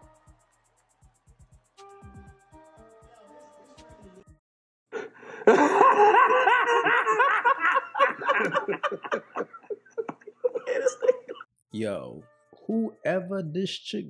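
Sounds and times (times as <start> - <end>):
men laughing hard: 5.0 - 11.5.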